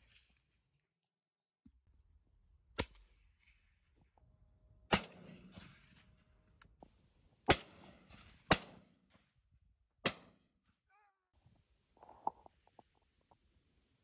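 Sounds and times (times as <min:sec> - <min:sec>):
shotgun shots: 0:04.9 - 0:06.3, 0:07.4 - 0:09.2, 0:10.0 - 0:10.4.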